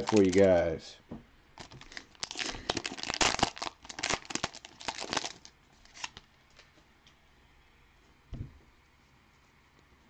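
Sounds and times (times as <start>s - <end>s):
wrapper tearing and crinkling: 0.0s - 0.6s, 1.6s - 6.3s.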